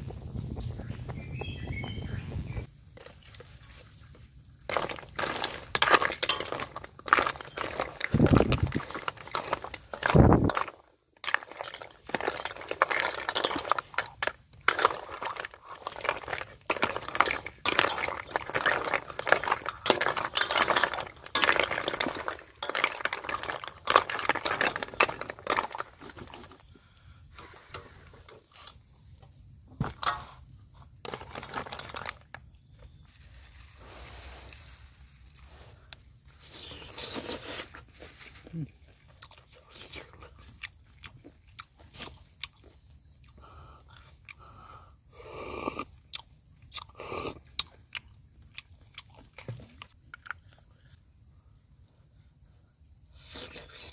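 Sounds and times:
soup boiling hard: 4.6 - 26.6
ladle scraping and clinking pan: 4.7 - 8.0, 8.8 - 26.4.

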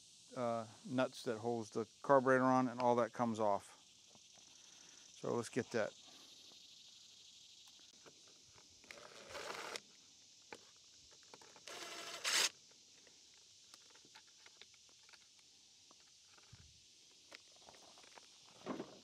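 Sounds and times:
cordless drill whirring: 8.9 - 9.8, 11.6 - 12.5.

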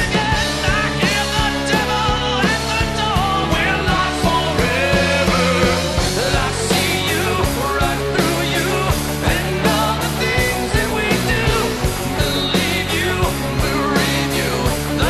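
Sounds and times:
song with steady drum beat: 0.0 - 15.0.

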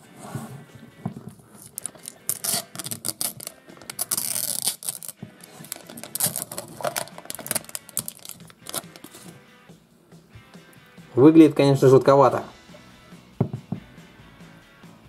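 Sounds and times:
plastic film crinkling and peeling: 1.6 - 9.3.

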